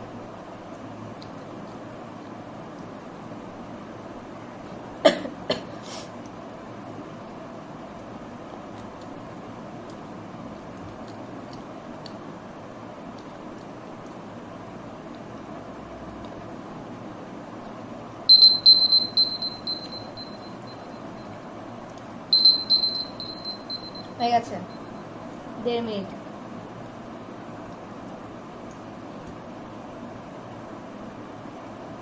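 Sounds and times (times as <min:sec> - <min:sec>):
phone timer alarm beeps: 0:18.3 - 0:21.4, 0:22.3 - 0:25.1.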